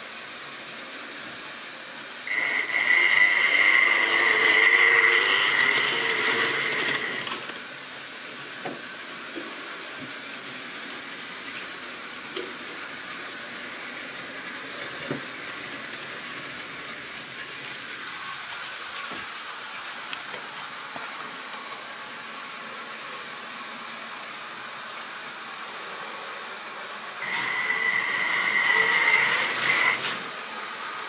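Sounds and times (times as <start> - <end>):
high electric motor whine: 2.3 - 7.6, 27.2 - 30.2
model train wheels rolling: 2.3 - 7.6, 27.2 - 30.3.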